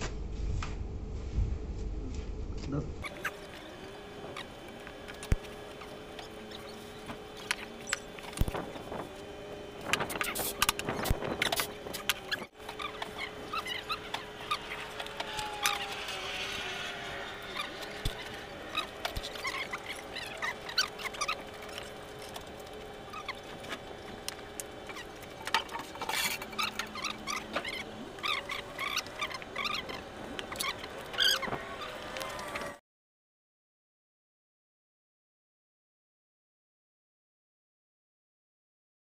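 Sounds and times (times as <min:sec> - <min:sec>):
mechanical hum: 0:00.0 - 0:32.8
high chirps and squeaks: 0:06.1 - 0:08.8, 0:10.1 - 0:22.3, 0:23.0 - 0:23.6, 0:24.8 - 0:32.0.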